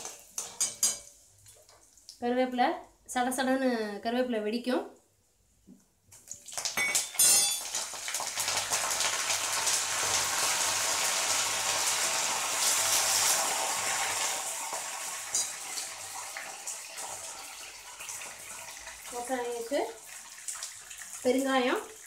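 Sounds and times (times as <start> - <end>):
leaves crackling in hot oil: 6.2 - 22.0.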